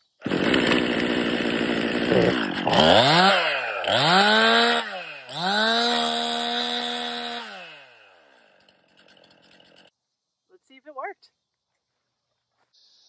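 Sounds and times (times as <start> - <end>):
chainsaw revving: 0.1 - 9.9.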